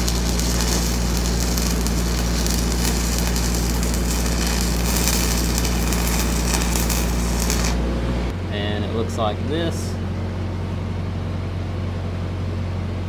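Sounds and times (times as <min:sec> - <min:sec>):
welding arc crackling: 0:00.0 - 0:07.8
low hum: 0:00.0 - 0:12.9.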